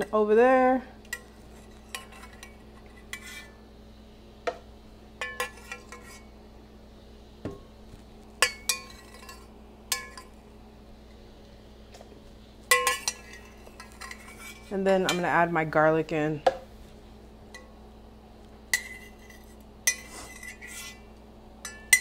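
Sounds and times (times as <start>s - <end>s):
metal spoon clinking on saucepan: 5.2s - 6.2s, 8.4s - 10.3s, 12.7s - 15.3s, 18.7s - 20.6s, 21.6s - 22.0s.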